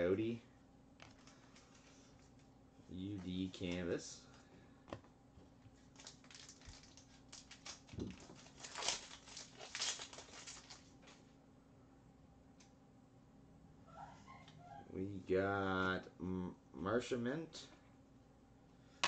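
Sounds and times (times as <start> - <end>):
wrapper crinkling and tearing: 5.8 - 11.0
cards being handled: 5.8 - 11.2.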